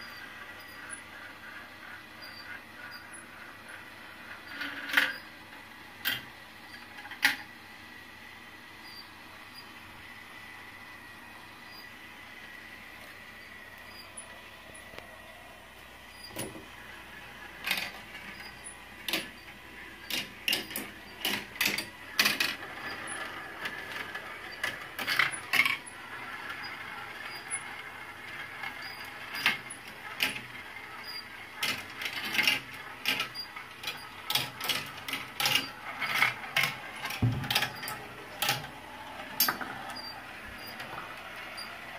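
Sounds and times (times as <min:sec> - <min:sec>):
marbles rolling on plastic track: 0:00.1 - 0:07.6, 0:16.3 - 0:41.9
marbles clicking and clacking: 0:17.6 - 0:41.0.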